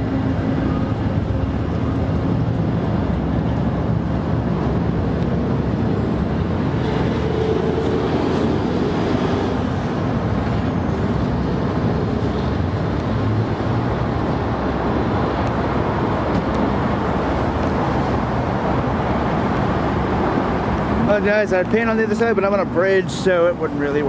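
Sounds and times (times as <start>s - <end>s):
train wheels on rail: 0.0s - 13.3s.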